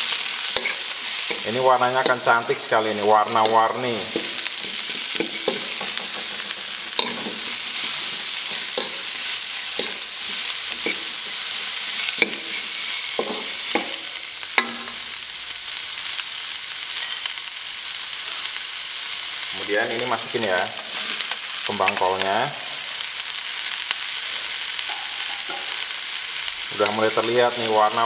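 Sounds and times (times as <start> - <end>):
spatula scraping a wok: 0.0 - 15.1, 16.8 - 17.4, 20.8 - 21.5, 24.1 - 26.6
vegetables sizzling in a wok: 0.0 - 28.0.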